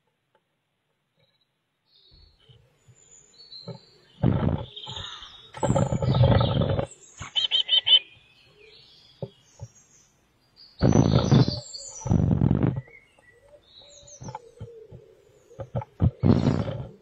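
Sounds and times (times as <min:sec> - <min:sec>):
loud rough bird calls: 0:02.1 - 0:09.8, 0:10.8 - 0:17.0
high chick chirps: 0:03.6 - 0:08.2.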